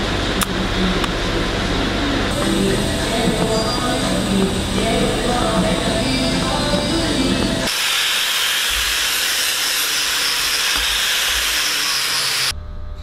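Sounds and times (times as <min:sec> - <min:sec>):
background music: 0:00.3 - 0:07.7
angle grinder polishing steel: 0:02.3 - 0:12.5.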